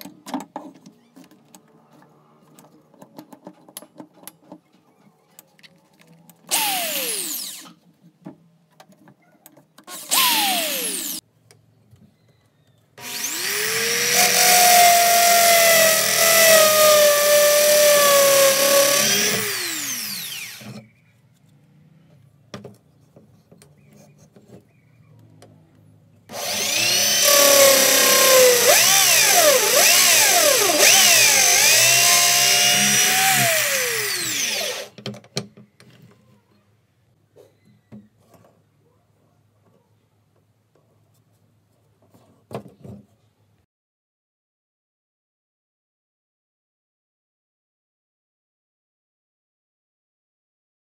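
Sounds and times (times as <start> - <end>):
electric drill drilling into wood: 6.5 - 7.8, 9.9 - 11.2, 13.0 - 20.8, 26.3 - 35.0.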